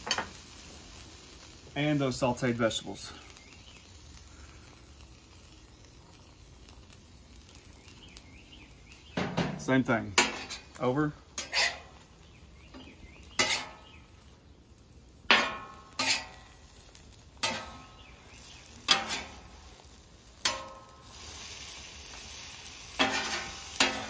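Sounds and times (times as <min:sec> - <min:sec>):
metal spatula clanking on griddle: 0:00.0 - 0:00.4, 0:09.2 - 0:10.7, 0:11.4 - 0:12.0, 0:12.8 - 0:13.9, 0:15.3 - 0:16.5, 0:17.4 - 0:17.9, 0:18.8 - 0:19.5, 0:20.4 - 0:21.0, 0:23.0 - 0:24.0
faint steady hiss: 0:00.0 - 0:24.0.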